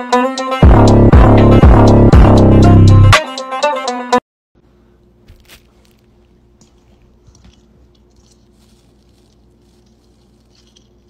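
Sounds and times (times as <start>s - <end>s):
loud music: 0.0s - 4.2s
steady low hum: 4.6s - 11.0s.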